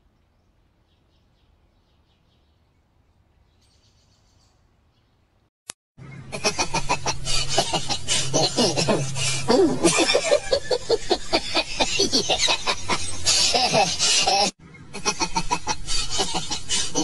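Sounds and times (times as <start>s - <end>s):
low steady hum: 6.0s - 17.0s
rapid cackling laughter: 6.2s - 17.0s.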